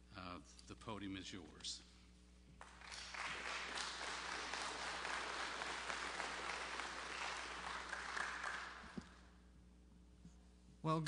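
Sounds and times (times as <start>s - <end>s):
audience applauding: 2.6s - 9.2s.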